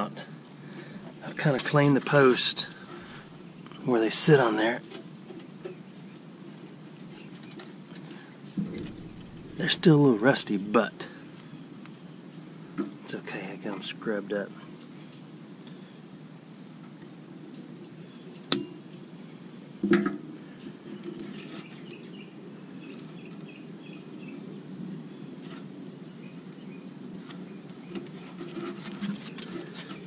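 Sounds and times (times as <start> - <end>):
steady low hum: 0.0 - 4.4, 8.1 - 14.7
faint high whine: 8.1 - 16.6
sharp metallic knocks: 8.6 - 10.6.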